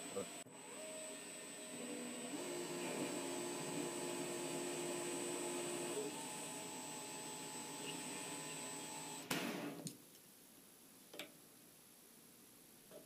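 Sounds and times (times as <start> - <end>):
metal lathe humming and whining: 0.0 - 9.2.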